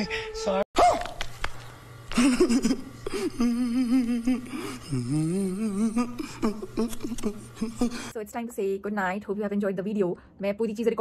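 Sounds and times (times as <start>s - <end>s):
man gasping: 3.0s - 8.1s.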